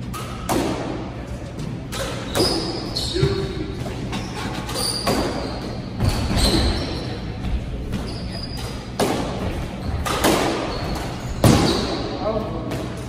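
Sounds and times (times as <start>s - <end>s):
squash ball hits: 0.2s - 3.9s, 4.8s - 6.8s, 8.8s - 12.1s
shoes squeaking on hardwood: 2.0s - 11.8s.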